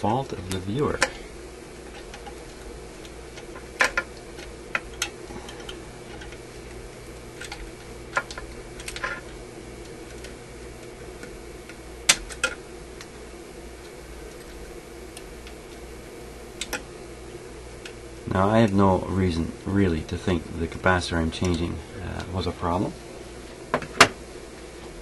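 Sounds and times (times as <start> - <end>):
steady hum: 0.0 - 25.0
tool clicking and tapping on wires: 1.8 - 6.5, 7.4 - 13.1, 16.6 - 16.9.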